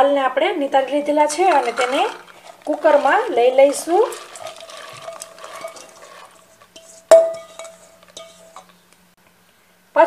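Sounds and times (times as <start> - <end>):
beans clattering into pot: 1.0 - 8.8
metal clang ringing: 7.1 - 8.7.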